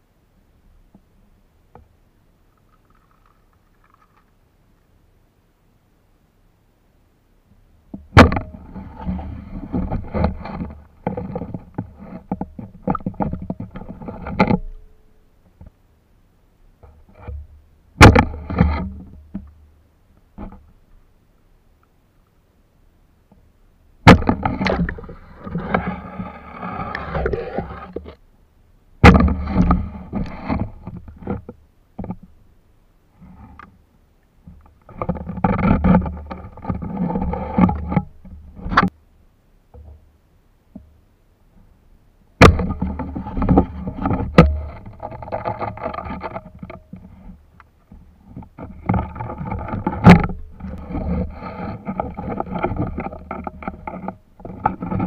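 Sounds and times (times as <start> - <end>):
sharp knocks: 24.0 - 25.0.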